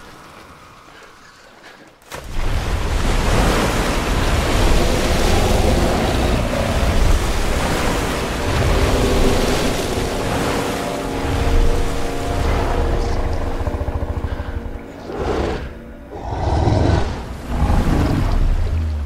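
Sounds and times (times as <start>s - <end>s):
water pouring and crashing: 2.1s - 13.5s.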